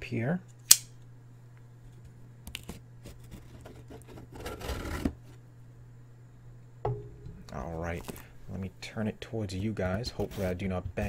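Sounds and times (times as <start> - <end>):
low steady hum: 0.0 - 11.0
scratchy rasp: 3.0 - 5.2.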